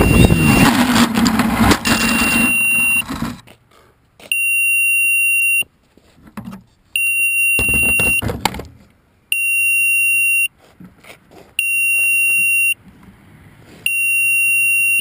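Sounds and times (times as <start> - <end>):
electronic buzzer beeping: 0.0 - 0.7, 1.9 - 3.0, 7.0 - 8.2, 9.4 - 10.5, 11.6 - 12.8, 13.9 - 15.0.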